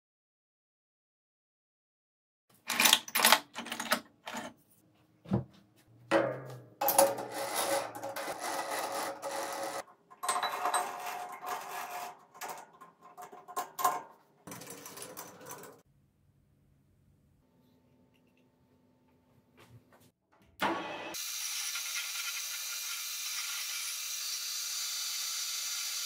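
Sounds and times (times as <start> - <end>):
metallic clanks: 6.1 - 15.8
metal scraping and rubbing: 6.8 - 15.8.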